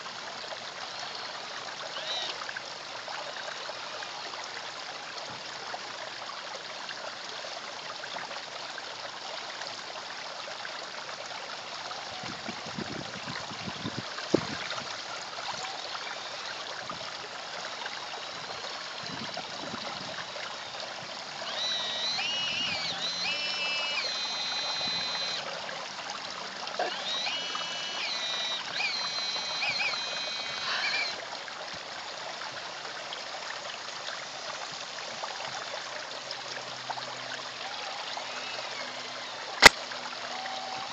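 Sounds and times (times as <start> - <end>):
pond water trickling: 0.0 - 40.9
high electric motor whine: 0.8 - 2.4, 15.5 - 16.9, 17.5 - 25.6, 26.7 - 31.2, 37.1 - 40.9.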